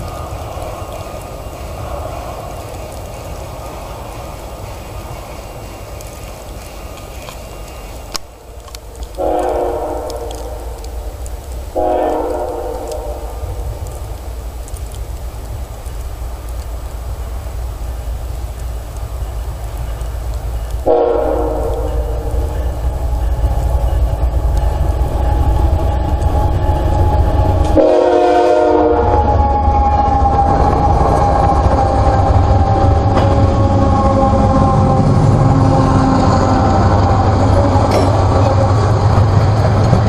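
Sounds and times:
diesel locomotive engine rumble: 0.0 - 40.0
locomotive air horn blasts: 9.2 - 10.7, 11.7 - 13.5, 20.8 - 22.4, 27.7 - 29.5.

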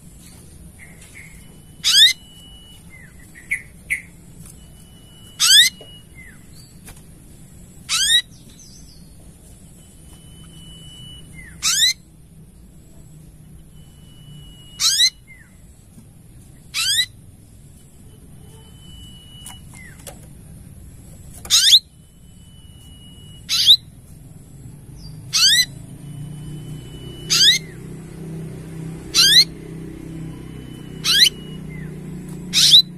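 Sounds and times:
sunbird shrill whistled call: 0.8 - 6.8, 7.9 - 9.0, 10.3 - 12.0, 13.8 - 15.6, 22.7 - 23.9, 25.3 - 27.8, 30.5 - 32.9.

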